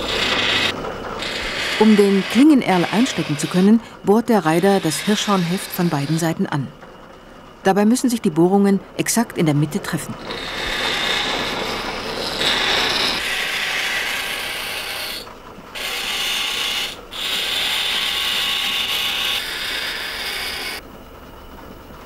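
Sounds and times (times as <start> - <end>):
drill grinding into horn: 0.0 - 6.3, 10.2 - 14.9
bench motor running: 0.0 - 6.4, 10.2 - 20.8.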